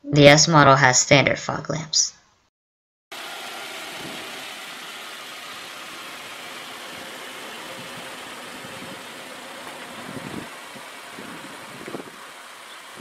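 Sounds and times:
outdoor background noise: 0:03.1 - 0:13.0
car engine idling: 0:03.2 - 0:13.0.

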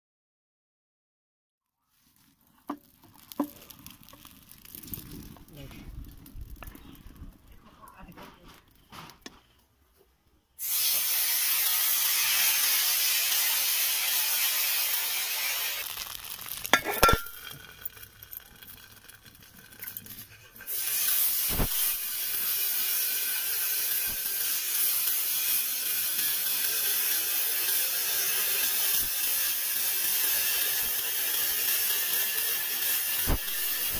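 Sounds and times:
batter sizzling in hot oil: 0:01.9 - 0:07.2, 0:10.6 - 0:33.9
metal plate clinking on pan: 0:16.8 - 0:17.9.

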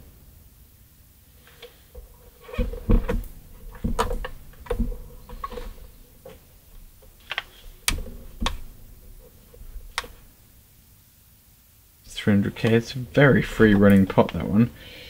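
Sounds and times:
dull knocks: 0:02.0 - 0:06.4.

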